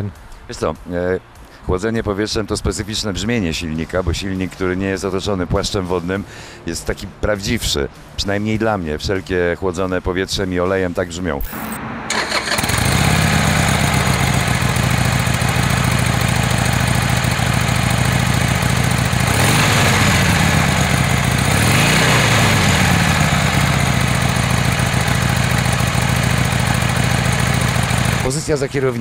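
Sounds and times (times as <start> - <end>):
motorcycle engine idling and revving: 11.4 - 29.0.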